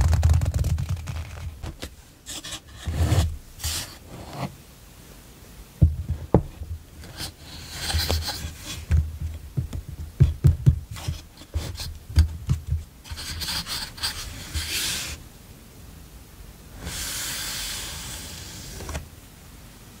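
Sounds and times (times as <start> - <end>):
paper rustling and sliding: 0.0 - 4.6, 6.1 - 9.0, 10.9 - 15.2, 16.8 - 19.1
pads knocking against wood: 5.8 - 7.2, 7.9 - 12.9.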